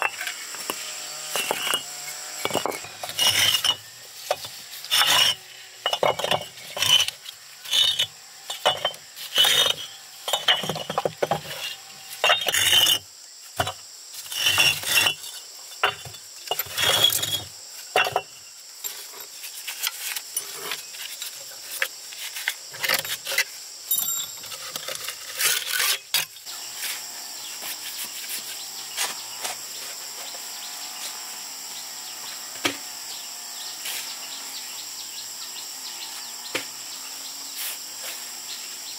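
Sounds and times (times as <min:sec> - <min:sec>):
high insect drone: 0:00.0 - 0:38.9.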